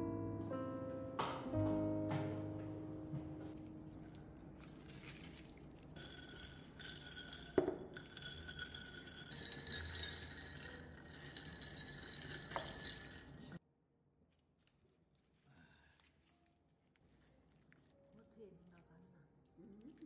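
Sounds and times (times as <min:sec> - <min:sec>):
ice clinking in a glass: 0:04.9 - 0:13.6.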